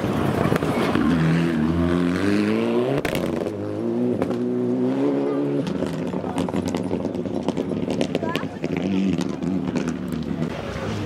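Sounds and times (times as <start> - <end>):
car engine accelerating hard: 0.0 - 11.0
exhaust crackles: 5.3 - 11.0.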